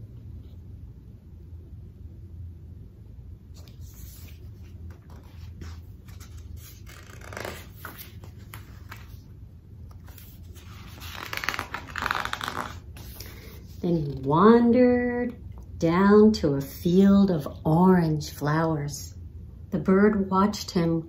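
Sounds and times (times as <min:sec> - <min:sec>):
low steady hum: 0:00.0 - 0:21.0
book pages rustling: 0:03.5 - 0:14.3.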